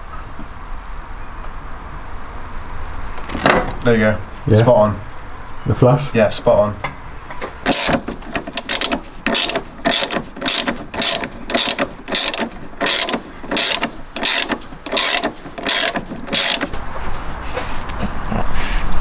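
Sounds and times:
socket ratchet clicking: 7.6s - 16.7s.

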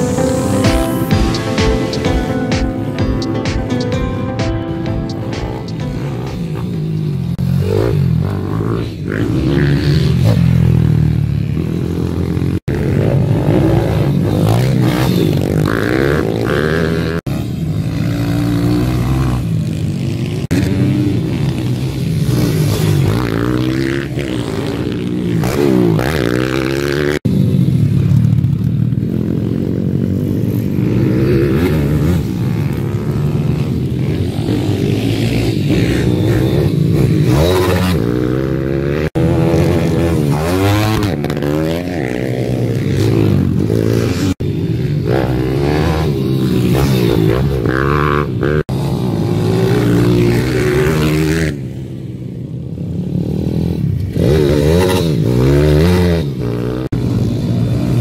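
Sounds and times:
pit bike engines revving: 4.6s - 58.0s.

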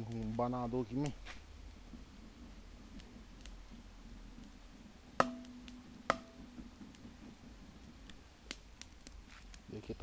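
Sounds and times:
low background hum: 0.0s - 10.0s
sharp knocks: 5.2s - 6.7s.

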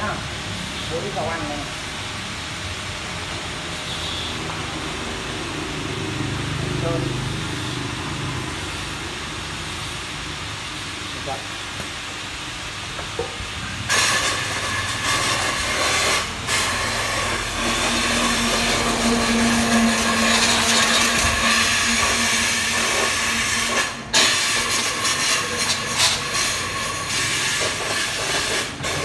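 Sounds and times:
compressed air hissing: 13.7s - 29.0s.

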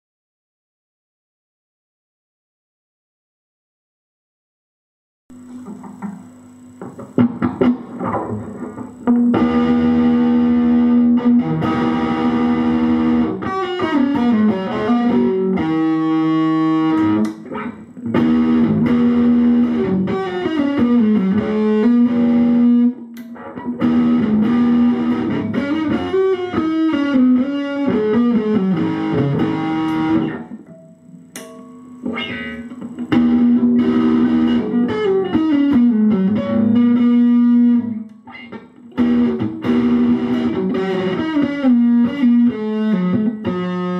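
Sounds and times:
distorted electric guitar riffs: 5.3s - 43.9s.

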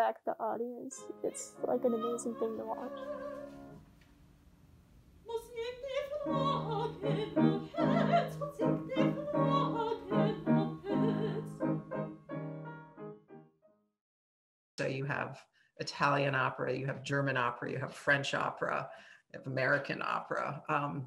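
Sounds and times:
piano accompaniment: 0.9s - 3.9s, 6.2s - 13.7s
woman singing opera: 1.8s - 3.6s, 5.3s - 11.7s.

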